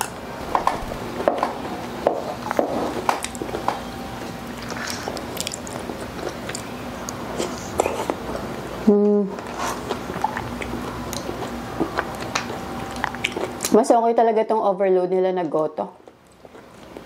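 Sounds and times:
wet chewing and mouth sounds: 4.5 - 8.4, 9.4 - 13.8, 16.0 - 17.0.

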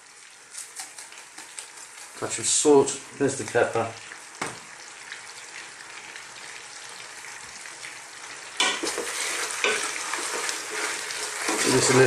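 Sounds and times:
vegetables sizzling in a pot: 0.0 - 12.0
wooden spoon stirring: 8.7 - 12.0.

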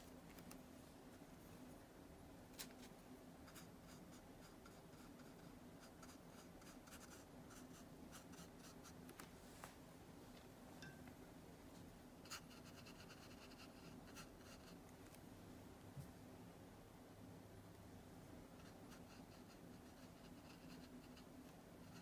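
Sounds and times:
faint low hum: 0.0 - 22.0
brush scratching on paper: 2.6 - 9.0, 12.2 - 14.8, 18.6 - 22.0.

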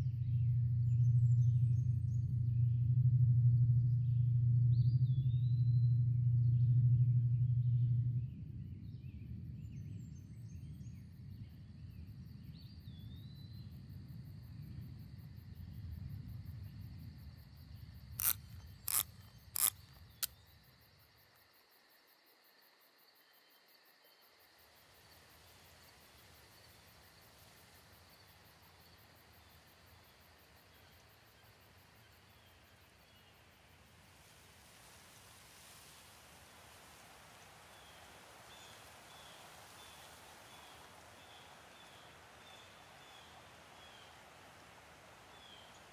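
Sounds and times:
low drone: 0.0 - 8.7
soft low rumble: 0.0 - 10.6
faint insect-like hum: 0.0 - 45.9
sharp clicks: 18.2 - 20.4.

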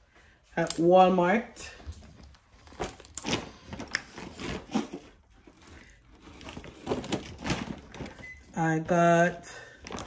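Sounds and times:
packaging rustling: 1.8 - 10.0.

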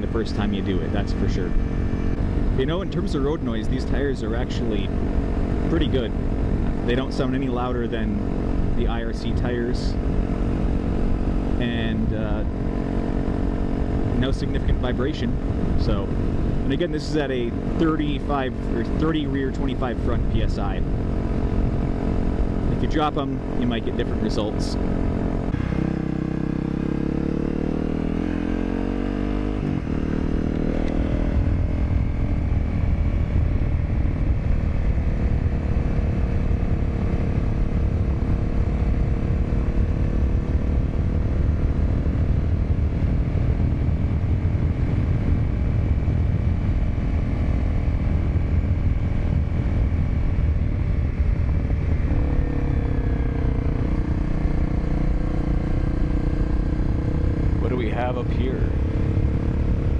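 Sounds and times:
motorcycle engine running: 0.0 - 59.9
wind noise: 30.6 - 55.1.

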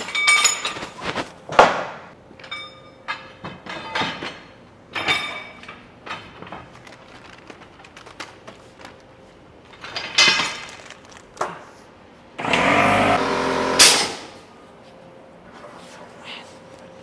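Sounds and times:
loud buzzing: 12.4 - 14.3.

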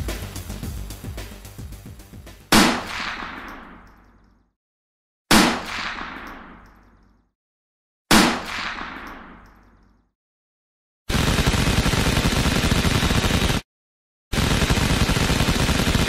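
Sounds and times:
intro music: 0.0 - 2.5
rifle shots echoing: 2.5 - 3.9, 5.3 - 6.7, 8.1 - 9.5.

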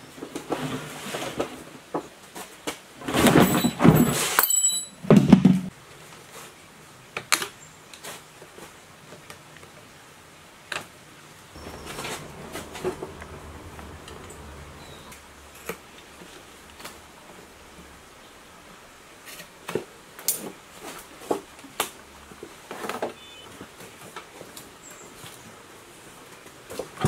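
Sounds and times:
clattering scrape: 3.0 - 4.5, 11.6 - 14.8.

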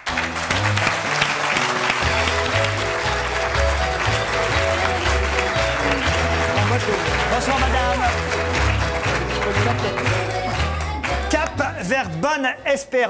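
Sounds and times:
audience applauding: 0.0 - 11.8
music with bass line: 2.0 - 12.4.

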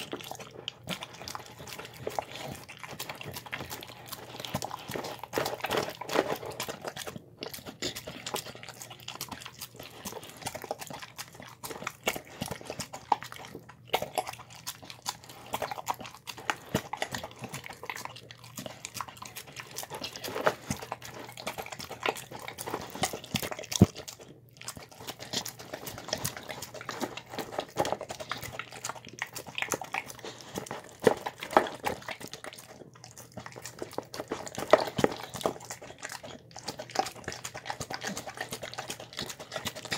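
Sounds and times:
dog chewing and lapping: 0.0 - 39.9.

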